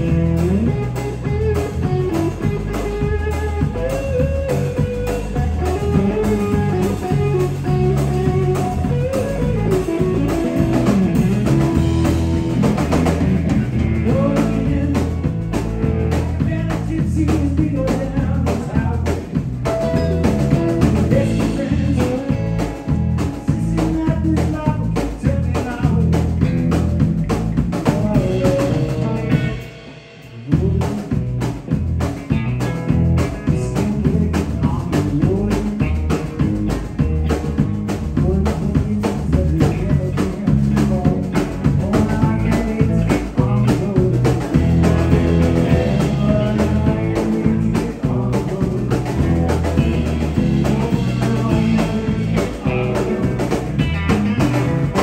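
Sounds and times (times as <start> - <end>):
drum kit: 0.0 - 55.0
electric bass: 0.0 - 55.0
electric guitar: 0.0 - 55.0.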